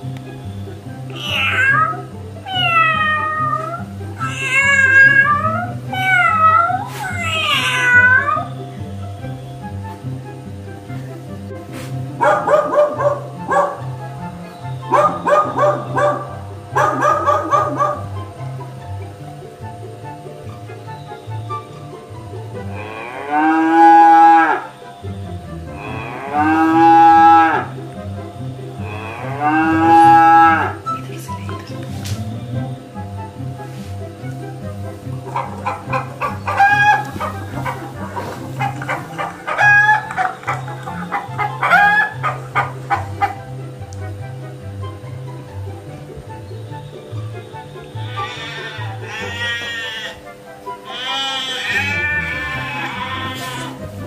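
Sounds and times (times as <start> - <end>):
background music with steady beat: 0.0 - 54.0
cat meowing: 1.1 - 8.5, 48.0 - 50.2, 50.9 - 53.8
cow mooing: 22.5 - 24.9, 25.5 - 28.0, 28.7 - 31.0, 35.2 - 43.5, 47.8 - 50.2, 50.8 - 54.0.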